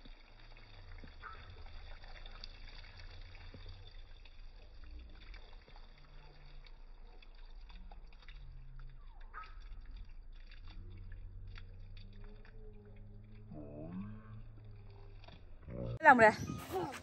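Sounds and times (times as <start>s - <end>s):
water pattering onto plants: 0.0s - 16.9s
low rumble: 7.5s - 16.9s.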